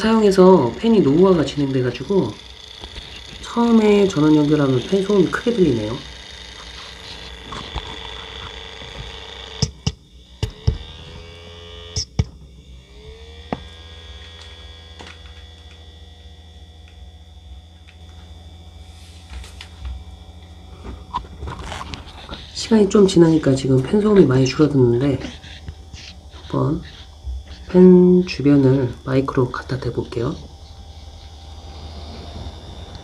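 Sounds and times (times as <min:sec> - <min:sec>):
cooling fans humming and whining: 0:00.0 - 0:33.0.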